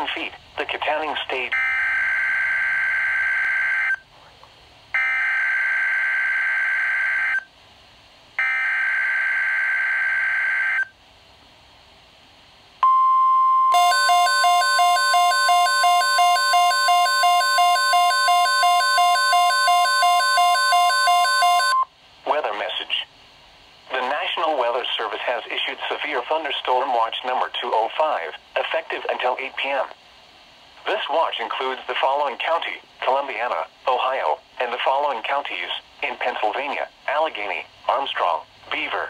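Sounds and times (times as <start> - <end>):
rapidly pulsing alert beeps: 13.7 - 21.8
steady warning alarm tone: 13.7 - 21.8.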